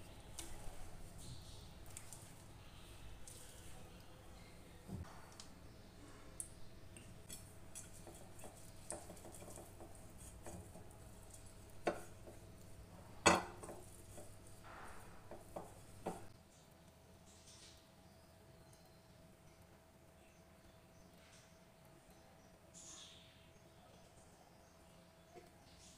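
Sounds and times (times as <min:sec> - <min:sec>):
pastry brush spreading grease: 0:07.2 - 0:16.4.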